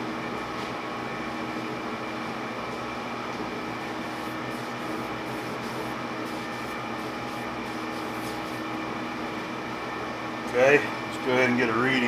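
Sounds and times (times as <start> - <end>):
machine-shop hum: 0.0 - 12.0
cloth rubbing on steel bar: 4.1 - 8.7.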